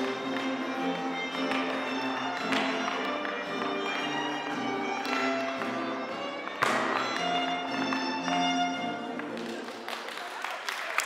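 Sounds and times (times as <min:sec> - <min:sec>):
hard shoes striking floor: 0:00.0 - 0:08.7.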